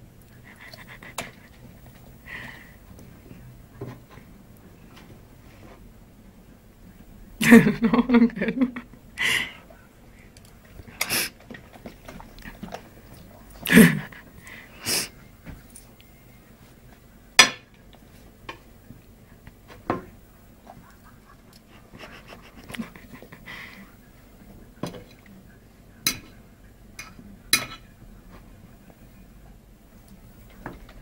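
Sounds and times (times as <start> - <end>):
cutlery clinking on a plate: 27.0 - 27.9.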